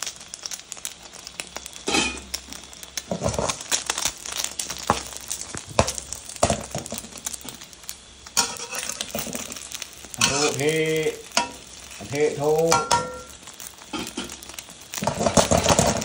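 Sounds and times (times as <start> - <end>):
egg frying in hot oil: 0.0 - 16.0
metal spatula scraping pan: 1.9 - 2.2, 8.4 - 9.5, 10.2 - 10.6.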